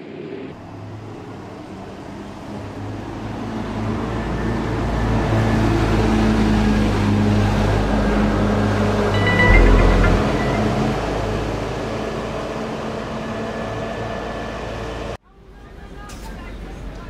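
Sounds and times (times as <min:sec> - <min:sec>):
road noise: 0:00.0 - 0:09.0
bus engine drone: 0:00.0 - 0:15.2.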